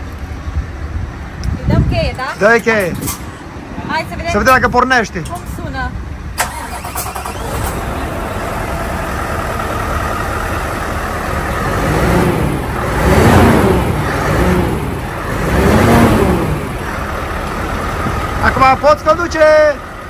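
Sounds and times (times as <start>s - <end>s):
diesel truck engine idling: 0.0s - 20.0s
diesel engine revving: 6.2s - 20.0s.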